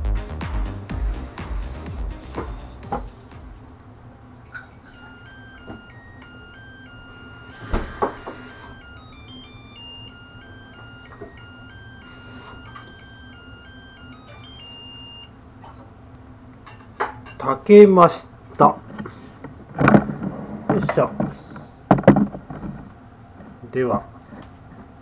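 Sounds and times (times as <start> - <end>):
rice cooker beep melody: 0.0 - 3.7, 4.9 - 15.4.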